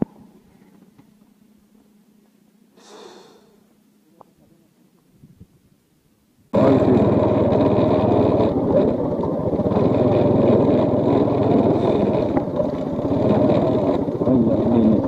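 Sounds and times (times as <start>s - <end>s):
road and wind noise: 6.6s - 15.0s
scooter engine running: 6.6s - 15.0s.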